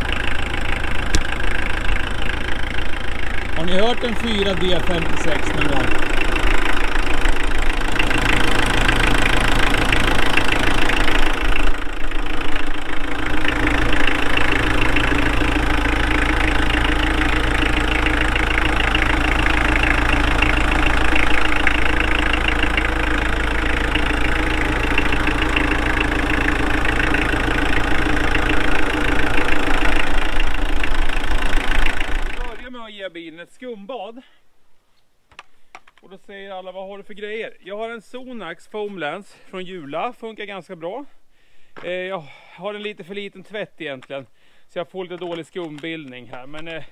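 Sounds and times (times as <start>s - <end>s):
diesel engine idling with knock: 0.0s - 32.7s, 45.0s - 46.9s.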